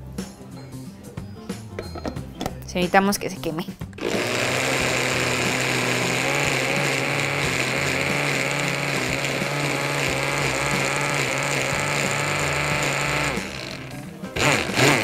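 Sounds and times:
blender motor grinding: 4.0 - 15.0.

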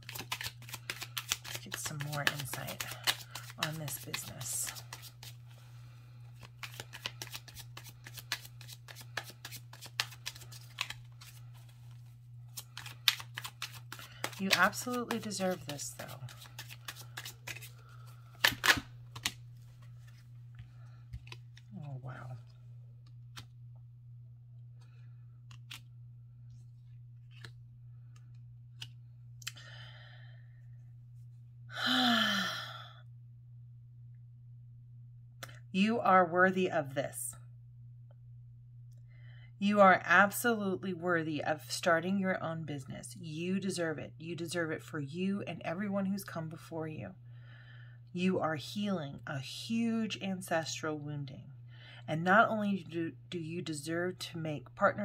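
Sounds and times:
cards being shuffled: 0.0 - 23.6, 24.8 - 29.0
woman sighing: 31.7 - 33.0.

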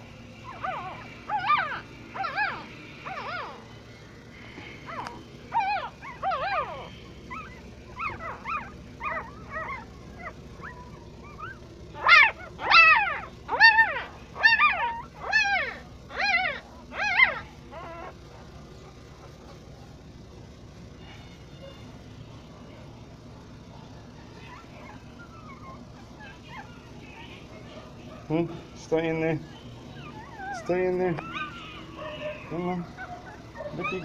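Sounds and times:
puppy crying squeals: 0.4 - 3.8, 4.8 - 18.2, 24.2 - 28.1, 29.4 - 34.0.

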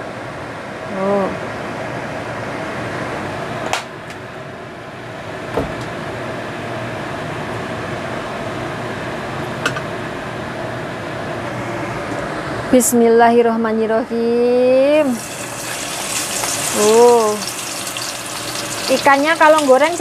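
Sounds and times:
kitchen appliance hum: 15.0 - 20.0.

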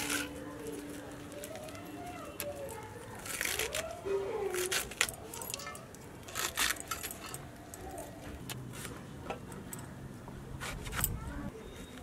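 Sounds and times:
bangles clinking: 4.5 - 7.9.

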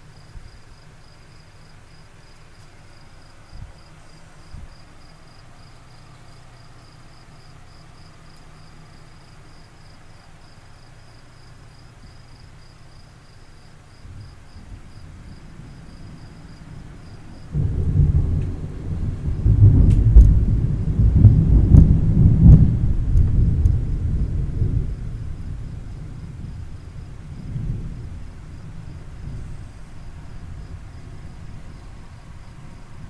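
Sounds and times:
thunder rumbling: 14.0 - 33.0
thunder cracks: 14.1 - 33.0.

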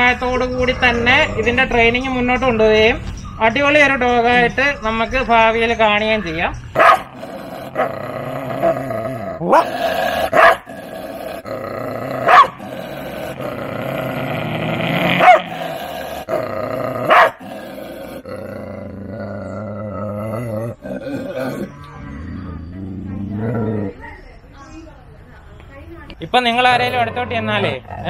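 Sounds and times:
dog barking sharply: 6.8 - 7.1, 10.4 - 10.6, 12.3 - 12.6, 15.2 - 15.5, 17.1 - 17.4
dog growling: 6.8 - 24.1, 26.7 - 28.0.

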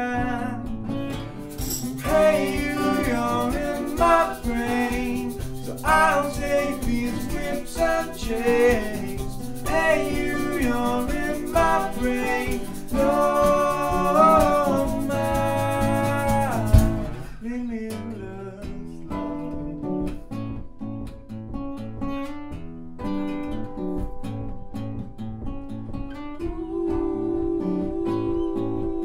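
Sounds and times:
guitar chords plucked and strummed: 0.0 - 29.0
loud drum hit: 16.6 - 17.2.

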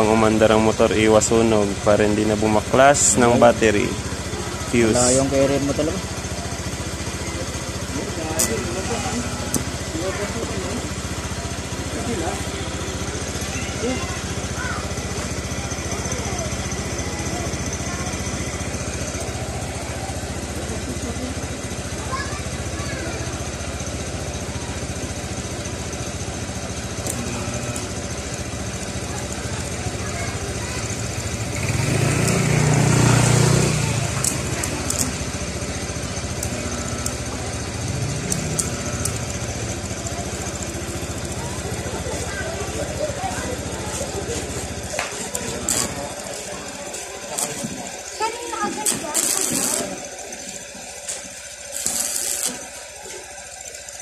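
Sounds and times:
scooter engine idling: 0.0 - 54.0.

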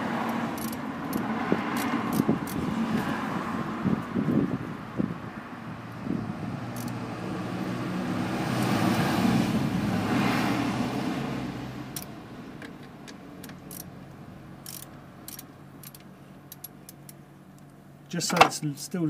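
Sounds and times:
vehicle rumble: 0.0 - 19.0
socket ratchet clicking: 0.5 - 2.6, 6.7 - 7.0, 13.4 - 13.9, 14.6 - 17.2.

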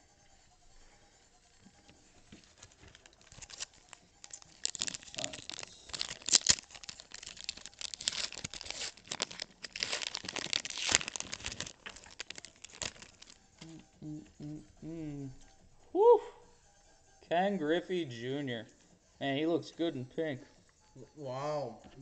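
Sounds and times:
foil wrapper tearing and crinkling: 2.3 - 13.7.

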